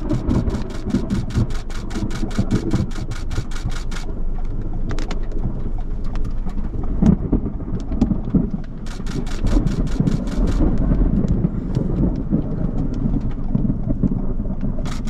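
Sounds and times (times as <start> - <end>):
rain falling on vehicle: 0.0 - 15.0
rapid regular ticking: 0.0 - 15.0
thunder rumbling: 0.0 - 15.0.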